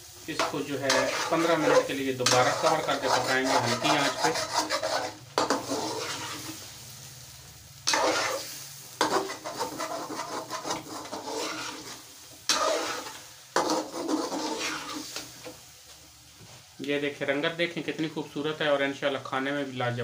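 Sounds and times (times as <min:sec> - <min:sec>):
gravy sizzling: 0:00.0 - 0:20.0
metal ladle scraping a pan: 0:00.3 - 0:06.6, 0:07.8 - 0:15.2.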